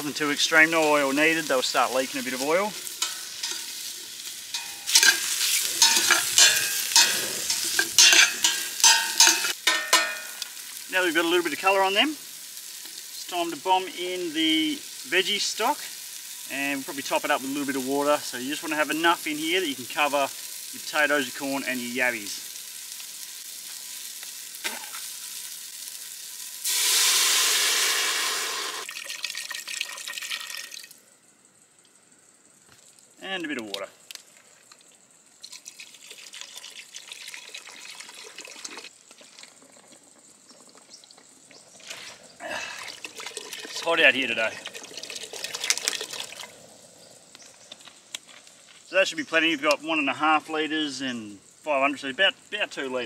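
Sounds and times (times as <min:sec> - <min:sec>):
meat slices sizzling: 0:00.0 - 0:29.6
metal tongs clinking on pot: 0:02.9 - 0:03.9, 0:04.5 - 0:10.5
liquid poured into hot pot: 0:26.6 - 0:30.9, 0:35.4 - 0:40.0, 0:42.7 - 0:43.9, 0:44.5 - 0:46.6.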